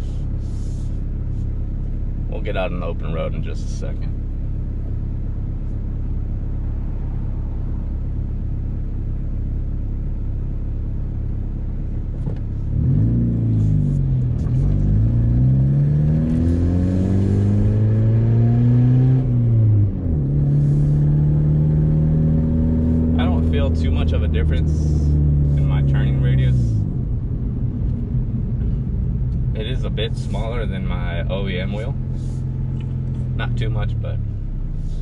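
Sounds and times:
car engine idling and accelerating: 0:00.0 - 0:35.0.

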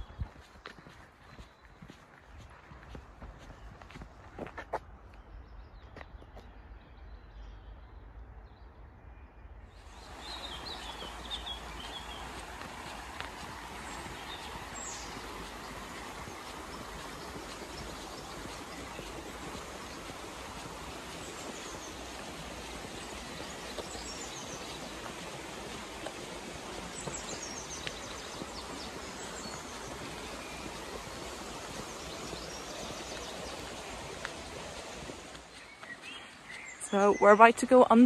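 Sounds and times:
river water rushing: 0:09.8 - 0:37.4.

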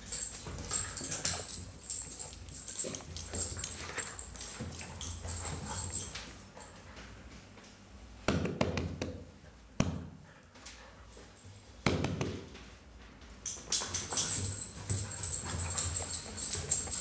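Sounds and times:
puppy claws clicking on tiles: 0:13.5 - 0:17.0.

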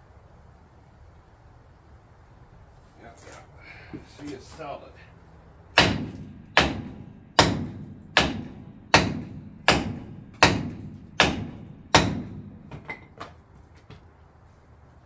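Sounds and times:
hammer striking metal drum: 0:05.8 - 0:13.1.

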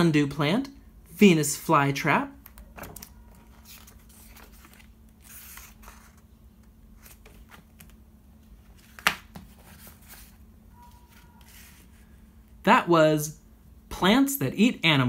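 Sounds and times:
book pages rustling: 0:02.5 - 0:12.1.

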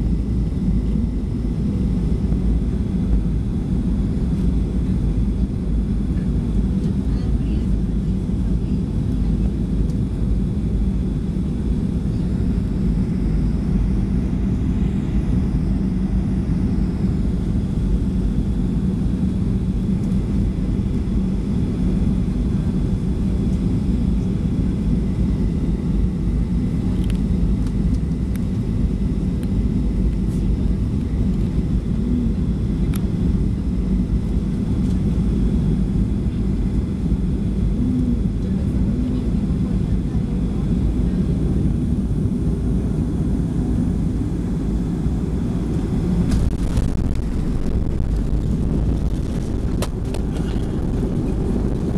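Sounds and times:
constant hum: 0:00.0 - 0:51.9
jet engines and rushing air: 0:40.7 - 0:51.9.

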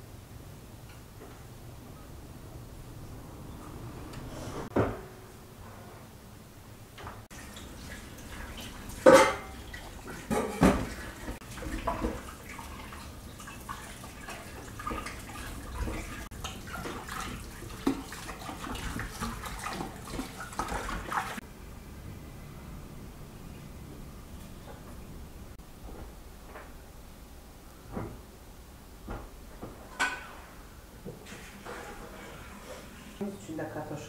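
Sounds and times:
water splashing: 0:07.3 - 0:21.4.

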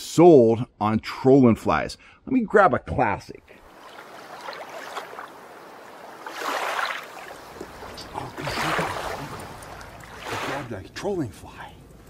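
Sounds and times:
water lapping against kayak hull: 0:03.5 - 0:10.8.

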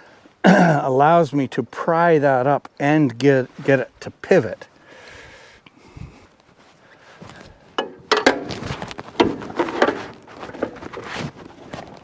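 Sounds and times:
metal knocks: 0:07.8 - 0:08.6, 0:09.2 - 0:10.7
wrench scraping metal plate: 0:07.8 - 0:11.1.

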